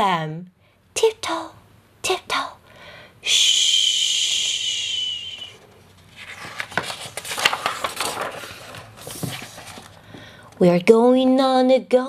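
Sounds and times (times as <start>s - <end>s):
book page turning: 5.6s - 10.2s.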